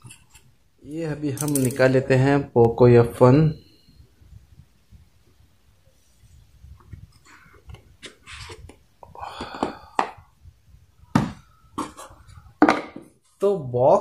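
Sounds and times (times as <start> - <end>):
boxes knocking on table: 12.6 - 13.1.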